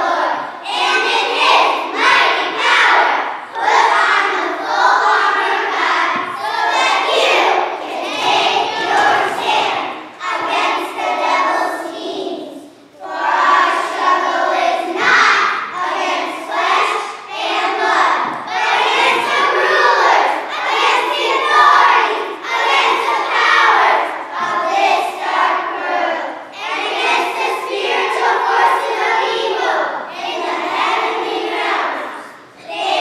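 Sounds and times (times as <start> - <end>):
children singing and calling out: 0.0 - 33.0.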